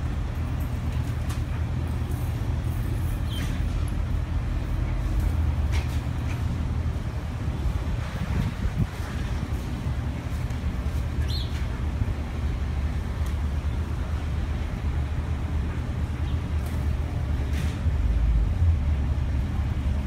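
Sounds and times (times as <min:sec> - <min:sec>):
distant traffic: 0:00.0 - 0:20.0
wind rumble on microphone: 0:04.2 - 0:16.0
bird chirp: 0:11.2 - 0:11.6.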